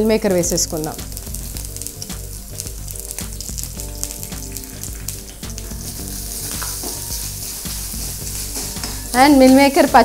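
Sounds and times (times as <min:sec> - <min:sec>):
food sizzling in hot oil: 0:00.0 - 0:10.0
spatula scraping a pan: 0:05.8 - 0:09.2.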